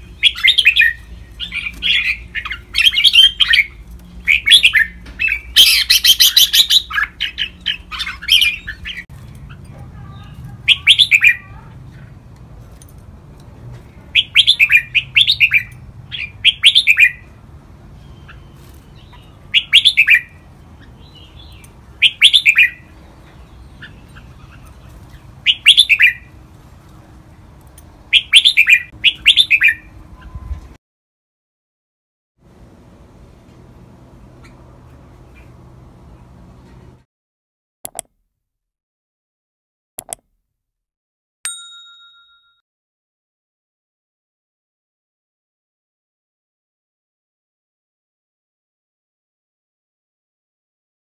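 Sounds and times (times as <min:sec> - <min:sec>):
bird singing warbled phrases: 0:00.0 - 0:12.2, 0:13.9 - 0:26.4, 0:27.3 - 0:30.6.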